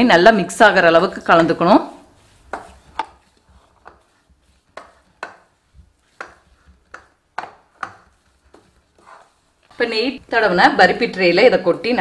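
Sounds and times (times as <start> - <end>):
wooden spatula knocking on pan: 2.5 - 9.2.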